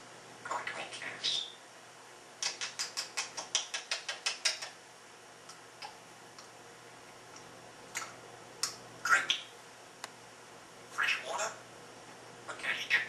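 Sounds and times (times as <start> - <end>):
parrot clicking: 2.4 - 4.8.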